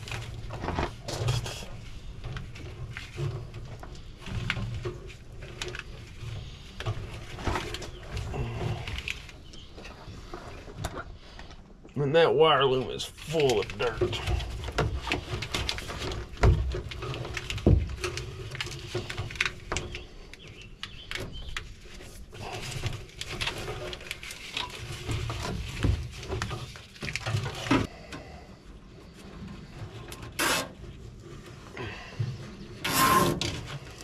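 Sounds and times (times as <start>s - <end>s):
plastic wire loom rustling: 12.7s - 27.9s
loud rasp: 32.8s - 33.5s.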